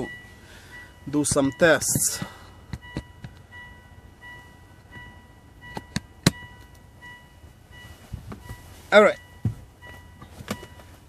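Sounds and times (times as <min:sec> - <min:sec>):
objects clicking and tapping in car: 0:09.4 - 0:11.0.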